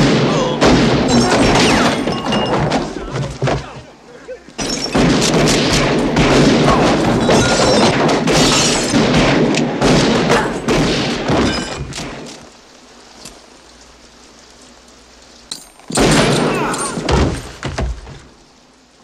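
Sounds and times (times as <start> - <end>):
glass breaking: 1.1 - 3.0, 4.6 - 5.6, 6.8 - 9.0, 11.3 - 12.0, 15.5 - 17.6.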